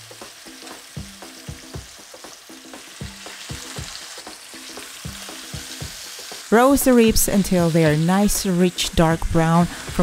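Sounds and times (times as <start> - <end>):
meat sizzling in oil: 0.0 - 10.0
soft plucked background music: 0.0 - 10.0.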